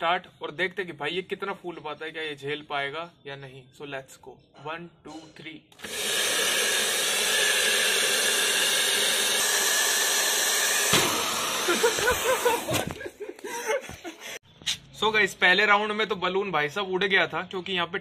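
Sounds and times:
hair dryer blowing: 0:05.8 - 0:12.8
balloon knocking off nozzle: 0:10.8 - 0:13.0.

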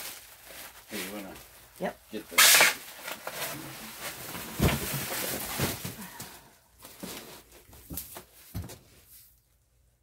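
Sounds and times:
plastic wrap crinkling: 0:00.0 - 0:06.0.

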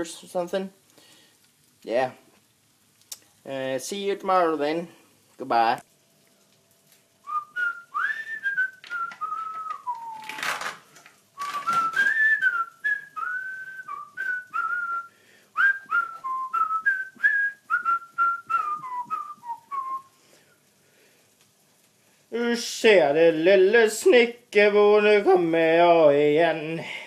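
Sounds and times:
man whistling a tune: 0:07.3 - 0:10.5, 0:11.4 - 0:20.1.

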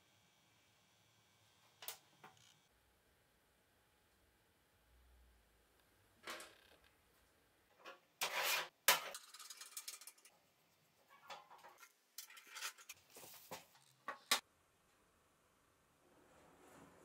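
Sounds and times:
metal scraping and rubbing: 0:08.2 - 0:10.3, 0:11.1 - 0:13.9.

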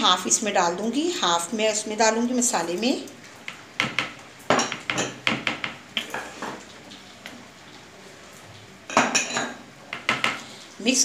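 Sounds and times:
spatula tapping plastic bowl: 0:03.5 - 0:06.1, 0:09.9 - 0:10.4.

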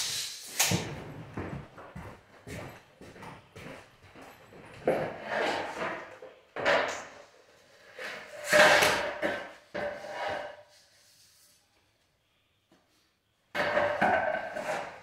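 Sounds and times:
flooring planks clattering: 0:08.0 - 0:10.6.

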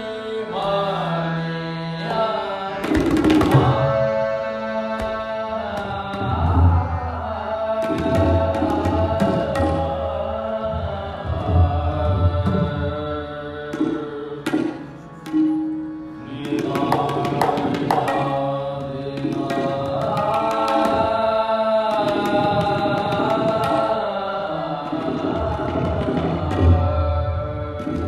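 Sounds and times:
harmonium sustained notes: 0:00.0 - 0:22.3
tabla drum strokes: 0:02.8 - 0:04.0, 0:07.8 - 0:13.1, 0:13.7 - 0:21.1, 0:24.8 - 0:28.0.

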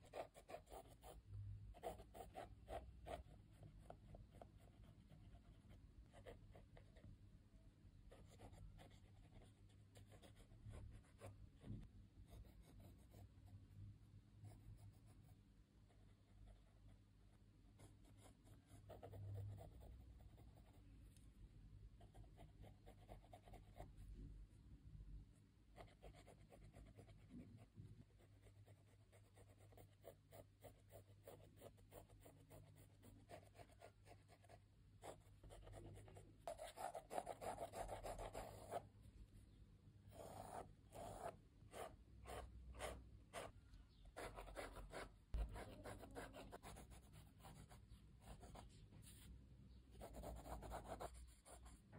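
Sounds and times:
pencil scratching on paper: 0:00.0 - 0:07.1, 0:08.1 - 0:13.5, 0:17.8 - 0:20.8, 0:22.0 - 0:24.0, 0:25.8 - 0:38.8, 0:40.1 - 0:49.3, 0:49.9 - 0:51.8.

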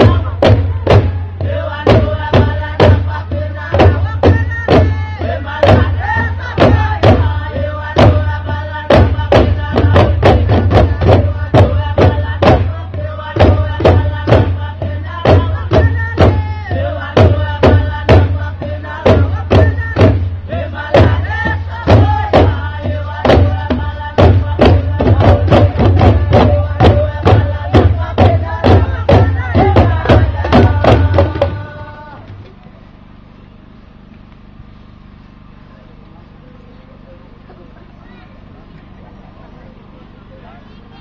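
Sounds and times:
steady drumming: 0:00.0 - 0:32.2
group of voices chanting and singing: 0:00.0 - 0:32.6.

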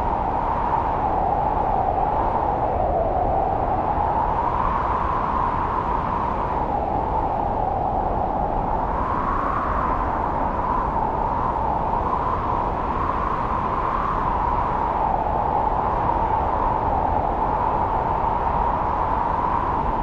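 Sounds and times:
strong wind whistling through trees: 0:00.0 - 0:20.0.

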